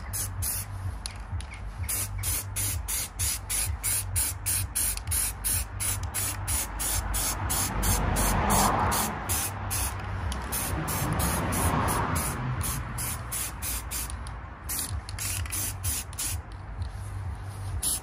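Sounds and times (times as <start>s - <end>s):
aerosol spray hissing: 0.0s - 0.7s, 1.8s - 14.1s, 14.7s - 16.4s, 17.6s - 18.0s
background music with beat: 0.0s - 18.0s.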